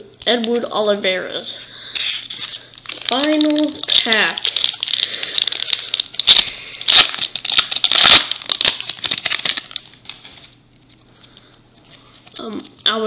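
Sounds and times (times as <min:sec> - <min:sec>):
foil wrapper crinkling and tearing: 0:02.2 - 0:10.6.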